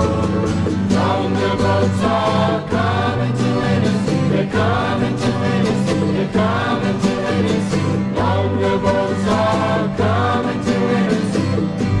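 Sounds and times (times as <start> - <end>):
steady bass line: 0.0 - 12.0
vocal group singing folk song: 0.0 - 12.0.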